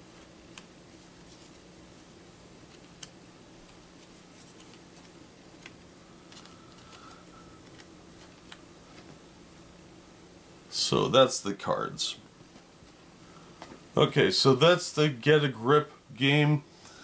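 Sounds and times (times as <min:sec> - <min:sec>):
faint low hum: 0:00.0 - 0:17.0
paper cards clicking: 0:02.7 - 0:09.1.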